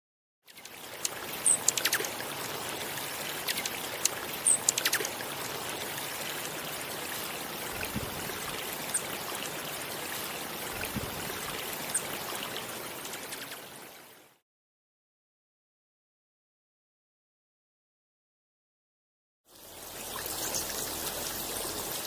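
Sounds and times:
running water: 0.5s - 14.4s, 19.5s - 22.0s
sharp ticks: 0.6s - 2.2s, 3.4s - 5.2s.

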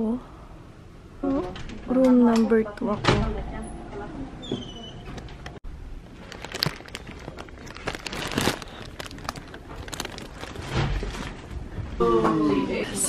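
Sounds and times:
rustling and crinkling: 5.9s - 12.0s.

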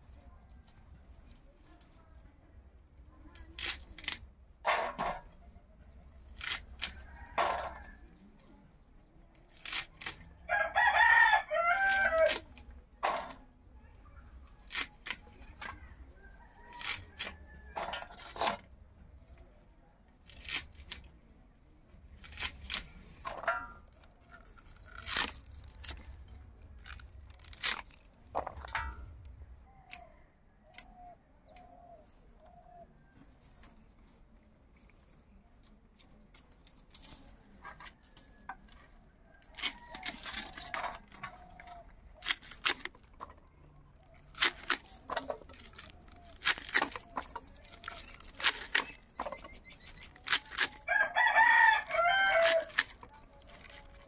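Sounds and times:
chopper blade cutting green onions: 23.9s - 28.7s, 44.2s - 50.9s.

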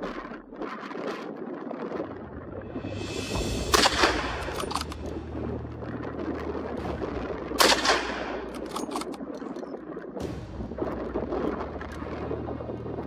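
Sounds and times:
rifle shots with echo: 3.7s - 5.0s, 7.6s - 9.2s.

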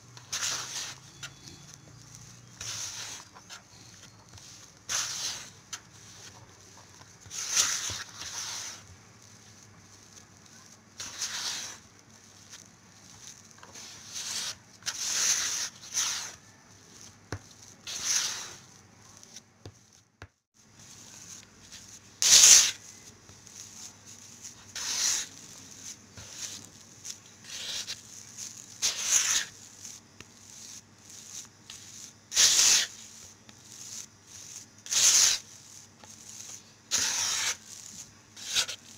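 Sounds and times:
spatula scraping dough in a bowl: 0.0s - 20.0s, 20.6s - 38.9s.

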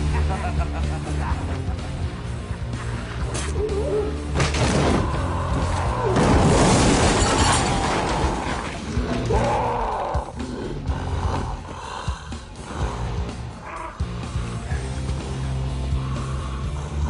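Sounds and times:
film score music: 0.0s - 6.6s, 7.5s - 17.0s
loud smashing crash: 6.1s - 9.0s.

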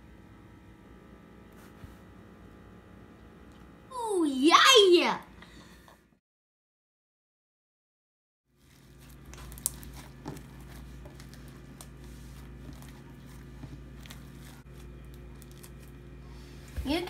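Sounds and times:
steady low hum: 0.0s - 4.6s, 8.5s - 17.0s
slime crackling and popping: 8.6s - 16.0s.

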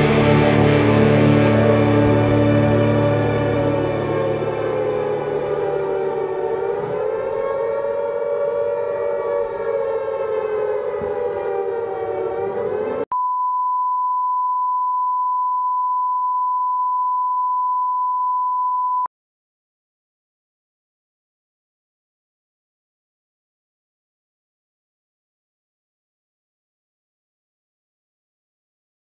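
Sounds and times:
wavering siren-like drone: 0.0s - 13.1s.

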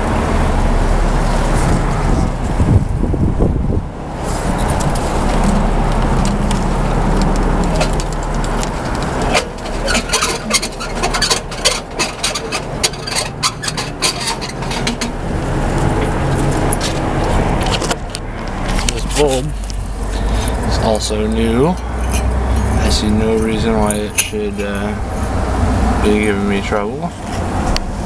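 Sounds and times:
wind rumbling on microphone: 0.0s - 28.0s
metal parts clicking and clinking: 7.2s - 15.2s, 21.6s - 24.9s.

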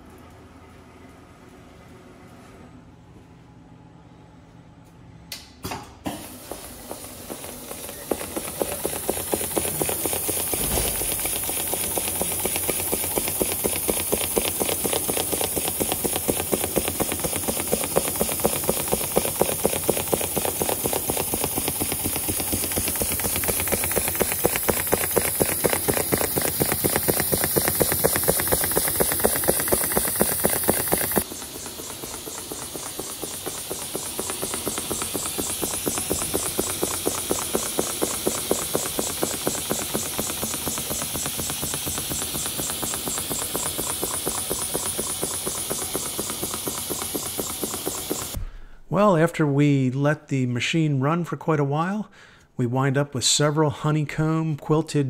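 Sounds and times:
quilting machine needle strokes: 6.5s - 48.4s
machine clicks: 7.0s - 48.4s.

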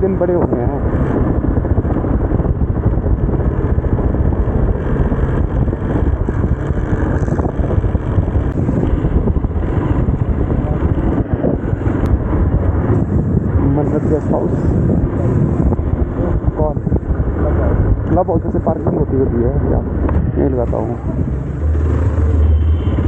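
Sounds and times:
motorcycle engine: 0.0s - 23.0s
road rumble: 0.0s - 23.0s
wind on microphone: 0.0s - 23.0s.

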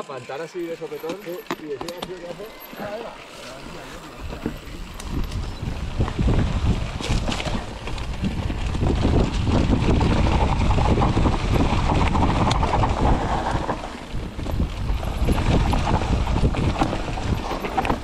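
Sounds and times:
bike rattling over rough ground: 0.0s - 18.0s
wind on microphone: 4.0s - 18.0s.

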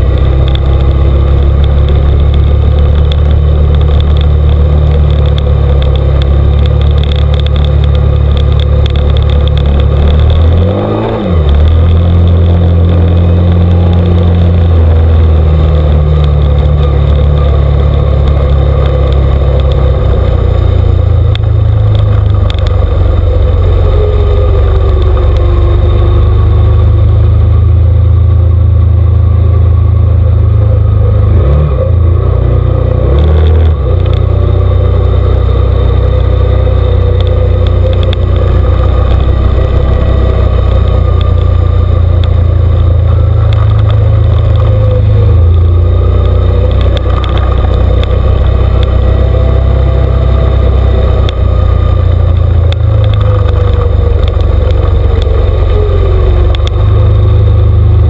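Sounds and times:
off-road vehicle engine rumbling: 0.0s - 58.0s.

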